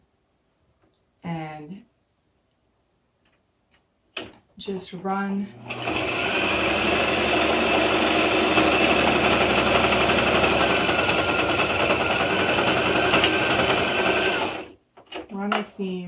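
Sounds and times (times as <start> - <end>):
sewing machine running: 5.6 - 14.8.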